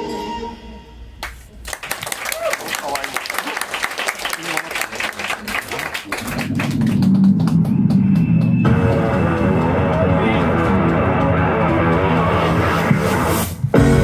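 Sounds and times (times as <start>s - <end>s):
audience clapping: 1.2s - 12.7s.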